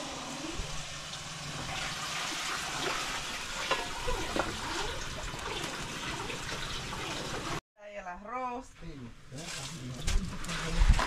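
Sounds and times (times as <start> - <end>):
water pouring into pot: 0.0 - 7.6.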